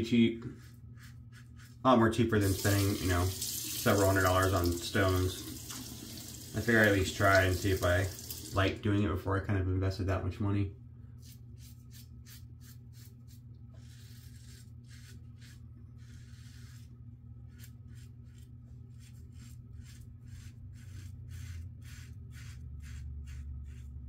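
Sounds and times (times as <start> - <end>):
razor scraping stubble: 0.4 - 1.8, 11.2 - 24.0
steady low hum: 8.0 - 24.0.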